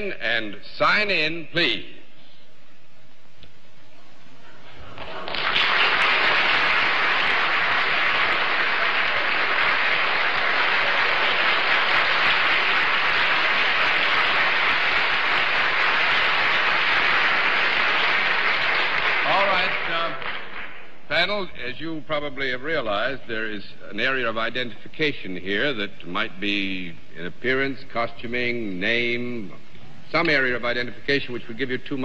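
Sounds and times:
audience applauding: 4.9 - 20.9.

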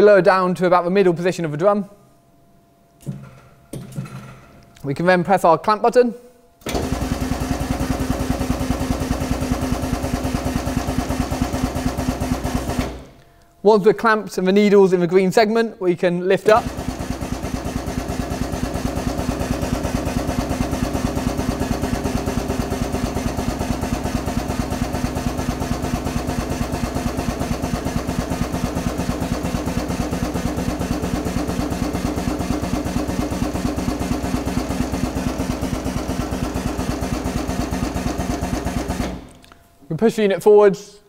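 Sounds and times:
drum lift drive pulsing: 6.7 - 13.1, 16.4 - 39.3.

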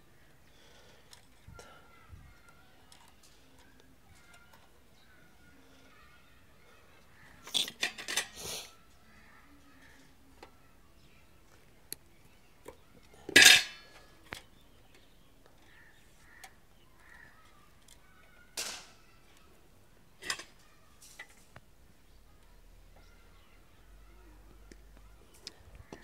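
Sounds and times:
metal tools clattering on stove: 13.4 - 13.8.

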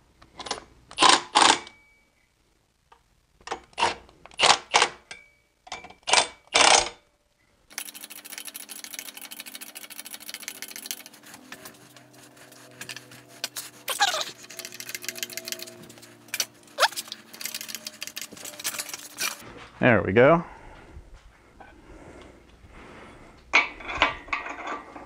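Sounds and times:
clattering and creaking: 8.9 - 19.7, 23.5 - 25.0.

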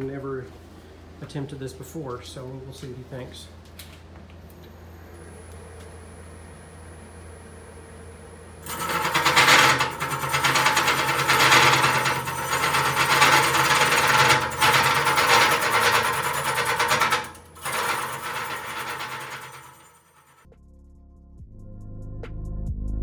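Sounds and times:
lathe motor humming: 8.6 - 20.4
tool scraping spinning wood: 8.6 - 20.5.

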